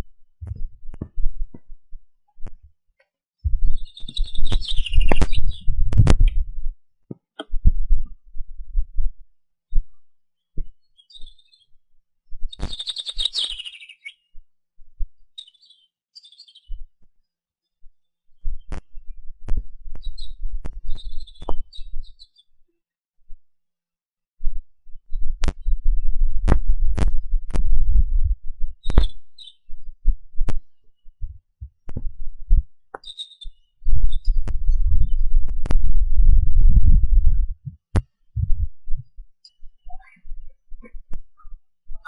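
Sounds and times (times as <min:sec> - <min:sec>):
wind rumbling on microphone: 0:00.0 - 0:02.7, 0:03.4 - 0:06.8, 0:07.4 - 0:09.2, 0:18.4 - 0:22.2, 0:24.4 - 0:32.8, 0:33.8 - 0:41.3
small birds chirping: 0:03.4 - 0:06.4, 0:10.6 - 0:11.8, 0:12.4 - 0:14.4, 0:15.2 - 0:16.9, 0:19.9 - 0:22.5, 0:28.8 - 0:29.8, 0:32.9 - 0:35.4, 0:39.0 - 0:41.6.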